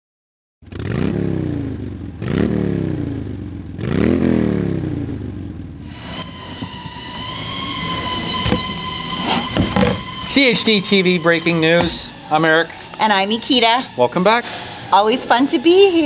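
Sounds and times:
motorcycle engine revving: 0:00.6 - 0:16.0
steady high whine: 0:05.0 - 0:16.0.

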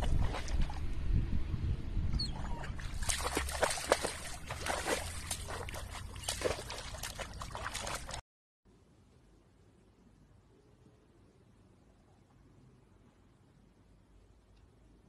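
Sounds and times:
dog splashing in shallow water: 0:00.0 - 0:00.8, 0:02.6 - 0:08.2.

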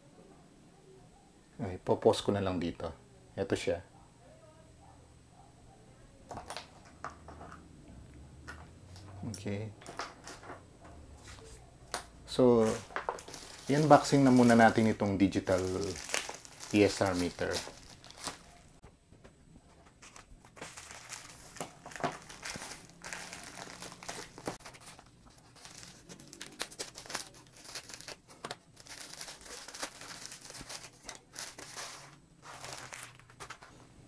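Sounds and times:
plastic mailer crinkling: 0:12.4 - 0:18.8, 0:19.9 - 0:33.8.

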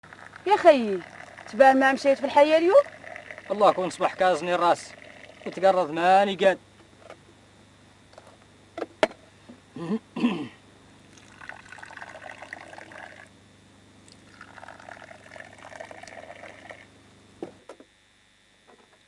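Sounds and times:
tea pouring into a glass: 0:00.1 - 0:05.8, 0:11.1 - 0:13.3, 0:14.1 - 0:16.9.

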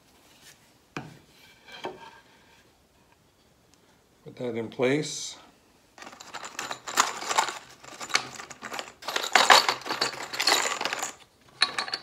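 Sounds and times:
screws clattering in plastic tub: 0:06.0 - 0:12.0.

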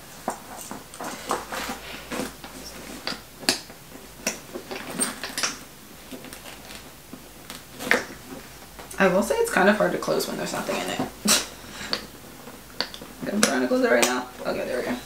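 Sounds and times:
handbag clicks and rustles: 0:00.1 - 0:08.4.

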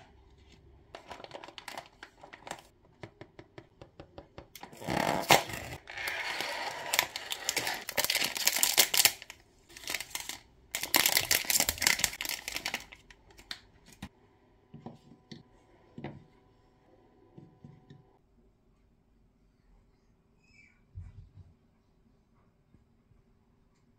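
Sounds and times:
foil wrappers crinkling and tearing: 0:05.2 - 0:13.6.

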